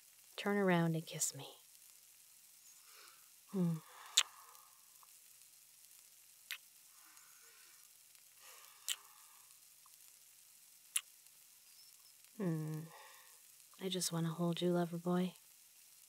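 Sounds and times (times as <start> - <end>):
bacon sizzling in a pan: 0.0 - 16.0
woman humming: 3.5 - 4.3, 12.4 - 13.1
lip-smack kisses: 4.1 - 4.4, 8.8 - 9.1.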